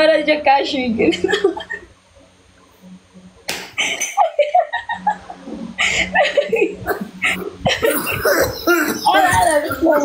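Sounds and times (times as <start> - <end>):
people laughing: 1.1 - 1.9, 3.8 - 10.0.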